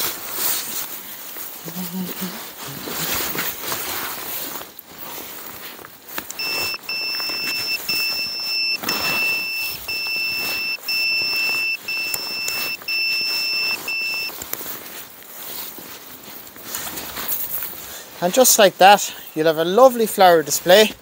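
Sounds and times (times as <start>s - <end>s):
electronic warning beeps: 6.3s - 14.4s.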